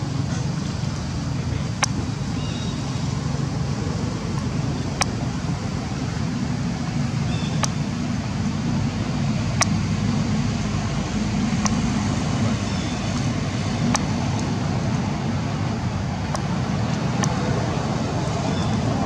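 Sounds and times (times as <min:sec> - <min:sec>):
low outdoor rumble: 0:00.0 - 0:19.0
sharp clicks: 0:07.5 - 0:07.9, 0:09.5 - 0:09.8, 0:11.5 - 0:12.1, 0:12.7 - 0:14.6.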